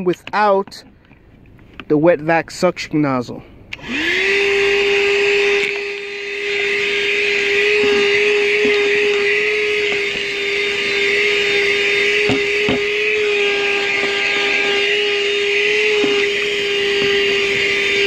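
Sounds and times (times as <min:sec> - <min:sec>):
handheld vacuum running: 0:03.7 - 0:18.0.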